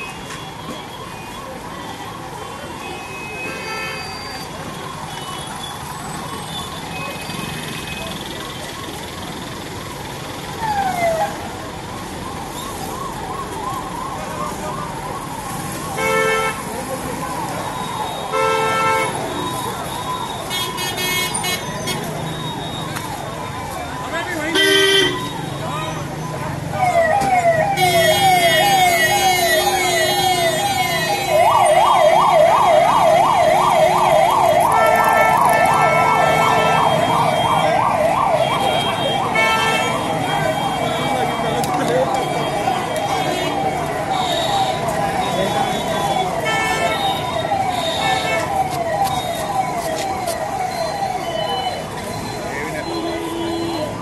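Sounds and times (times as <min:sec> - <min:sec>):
ambulance siren yelp: 0:00.0 - 0:54.0.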